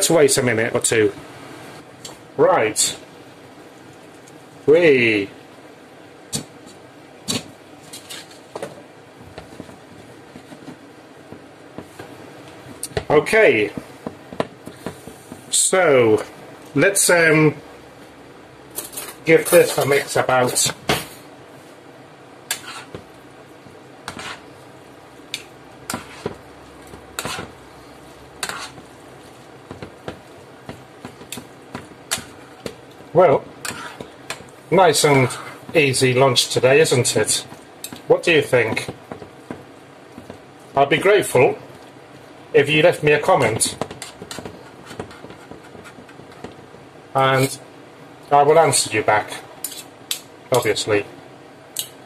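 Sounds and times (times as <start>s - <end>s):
cutlery scraping and clinking on pan: 22.5s - 23.0s, 24.1s - 24.4s, 25.9s - 26.4s, 27.2s - 27.5s, 28.4s - 28.8s, 33.6s - 34.4s, 49.6s - 49.9s.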